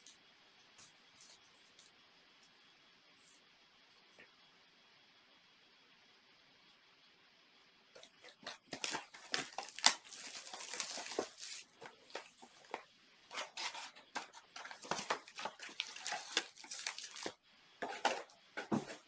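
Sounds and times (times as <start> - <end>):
packaging crinkling and tearing: 8.2 - 19.0.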